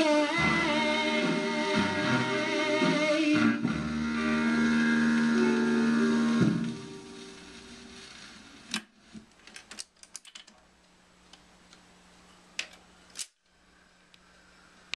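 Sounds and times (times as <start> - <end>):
music: 0.0 - 8.2
faint steady hum: 0.0 - 14.9.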